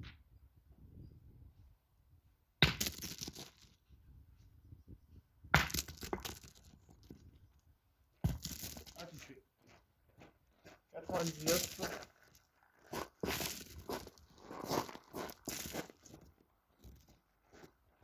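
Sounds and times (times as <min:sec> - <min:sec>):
steel boules cracking impacts: 0:02.6 - 0:03.7, 0:05.5 - 0:06.8
boules scraping and rolling: 0:02.6 - 0:03.8, 0:05.6 - 0:07.6, 0:08.2 - 0:09.4, 0:11.0 - 0:17.7.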